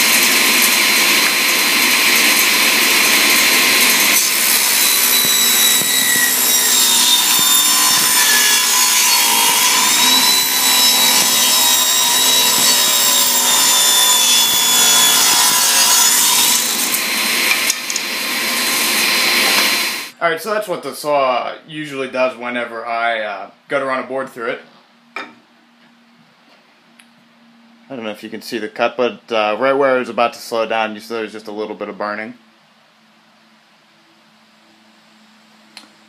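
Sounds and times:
table saw ripping a board: 0.0 - 20.1.

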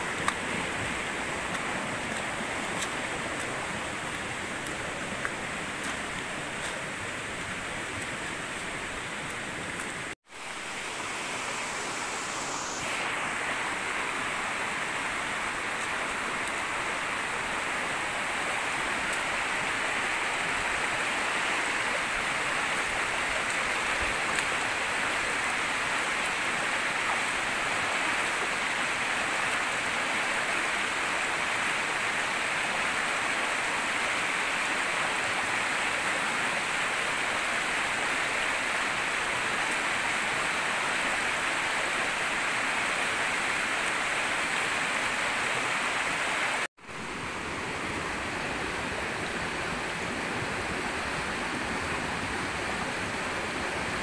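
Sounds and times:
water rushing: 0.0 - 54.0.

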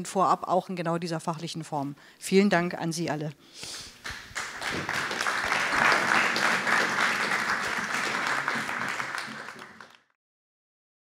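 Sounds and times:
audience applauding: 4.0 - 10.2.

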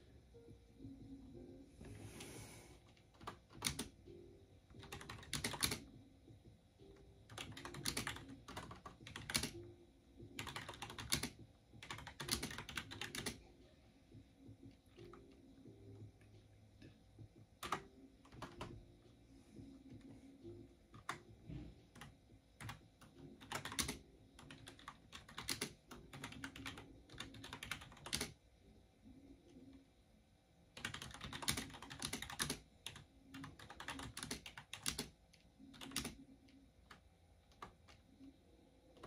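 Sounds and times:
typing on computer keyboard: 2.9 - 4.0, 4.7 - 6.0, 7.3 - 9.7, 10.3 - 13.4, 17.6 - 18.8, 20.9 - 21.3, 21.9 - 28.4, 30.8 - 38.0.

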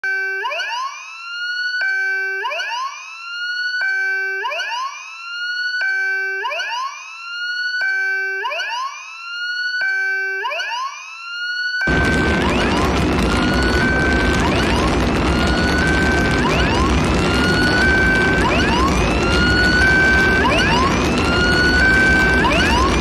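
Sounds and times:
siren-like rising tone: 1.5 - 23.0
dense noisy texture: 11.9 - 23.0.

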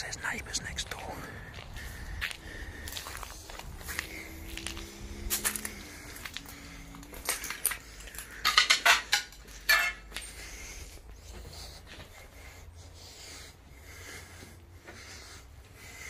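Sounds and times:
footsteps over debris: 1.4 - 12.1
debris clinking and clattering: 7.1 - 10.3.

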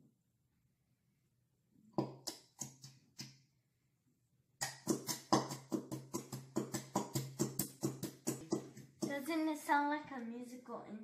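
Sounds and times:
glue bottle sputtering: 4.6 - 9.3.

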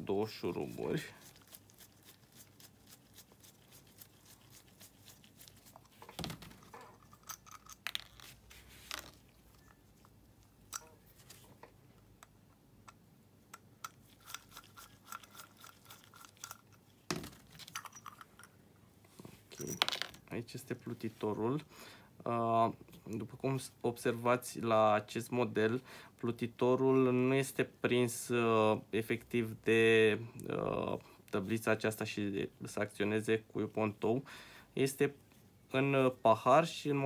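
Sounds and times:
metal screw clicks and scrapes: 6.6 - 9.7, 12.9 - 16.8, 17.5 - 18.6.

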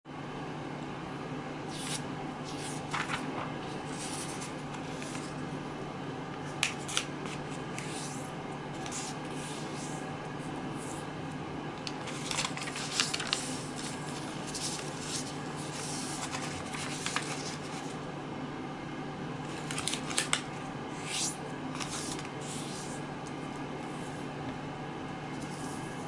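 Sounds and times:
steady low hum: 0.1 - 26.0
paper rustling as folded: 1.7 - 5.4, 11.8 - 18.0, 19.5 - 23.0.

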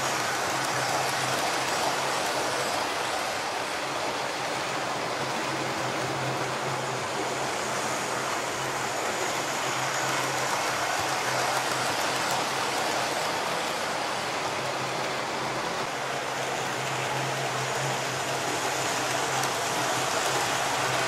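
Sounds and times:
model train wheels rattling on rail: 0.0 - 21.0.

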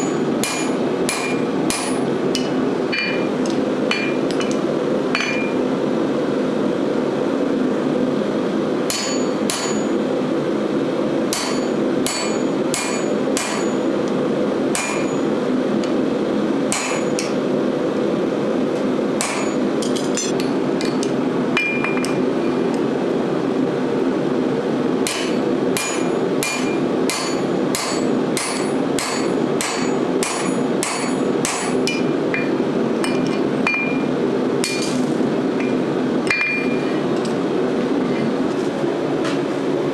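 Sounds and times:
hammer blows on anvil: 0.0 - 4.6, 11.3 - 13.8, 14.7 - 15.2, 25.0 - 34.9.

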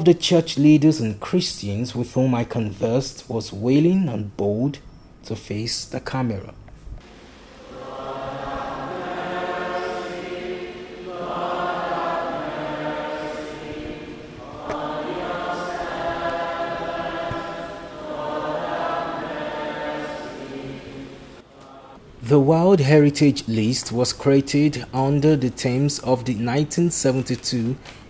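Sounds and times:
group of voices chanting: 7.6 - 22.0.

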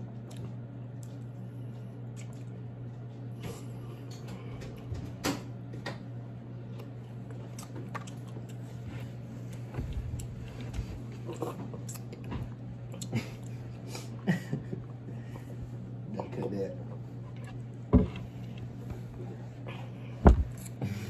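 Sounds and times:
low room hum: 0.0 - 21.0
dull thumps: 20.2 - 20.6.

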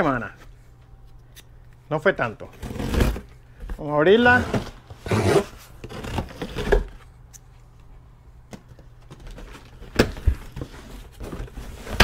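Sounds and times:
tape scraping and rustling: 4.2 - 7.2.

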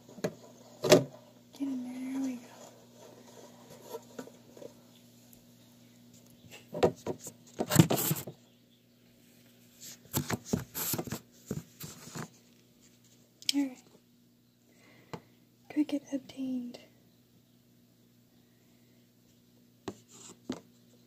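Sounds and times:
faint steady hum: 0.0 - 21.0
plastic container rattling and scraping: 2.0 - 4.8, 6.9 - 8.3.

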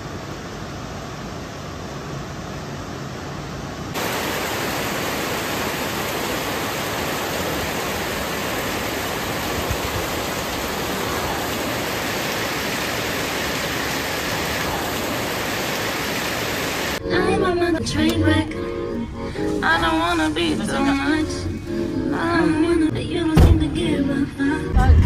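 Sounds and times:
heavy rain pouring: 3.9 - 17.0.

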